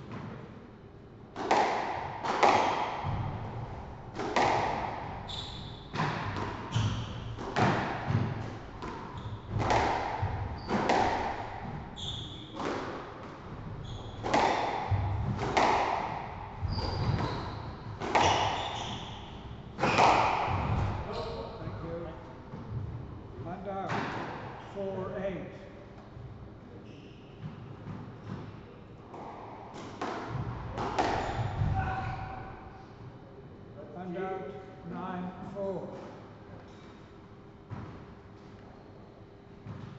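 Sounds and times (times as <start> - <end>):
squash ball hitting rackets and walls: 1.3 - 21.5, 23.7 - 24.6, 27.3 - 32.7, 37.7 - 38.2, 39.6 - 39.9
shoes squeaking on court: 5.2 - 5.9, 10.2 - 11.0, 11.9 - 12.6, 13.8 - 14.4, 16.6 - 21.6, 26.8 - 27.6, 31.2 - 32.2.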